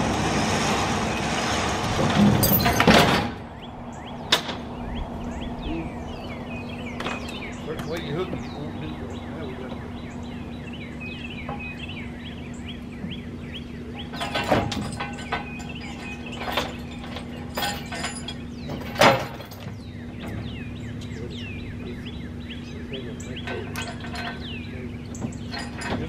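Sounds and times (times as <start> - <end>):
steady low hum: 0.0 - 26.0
metal clanks and knocks: 1.6 - 3.5, 11.4 - 11.8, 14.0 - 21.2, 23.2 - 26.0
bird chirping: 3.4 - 26.0.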